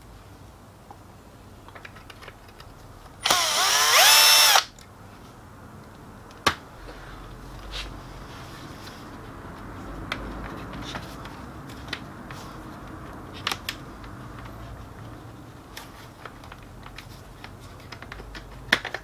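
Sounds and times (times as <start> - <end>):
plastic clicks and knocks: 17.8 - 19.0.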